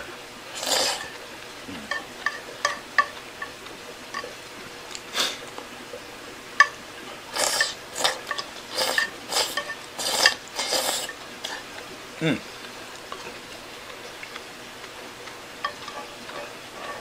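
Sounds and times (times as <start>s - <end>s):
utensils scraping on a plate: 0.5s - 1.2s, 7.3s - 11.7s, 15.2s - 17.0s.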